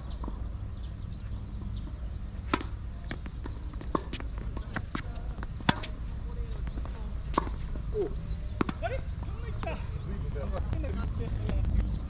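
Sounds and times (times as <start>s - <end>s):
tennis ball hit by racquets: 2.4s - 9.7s.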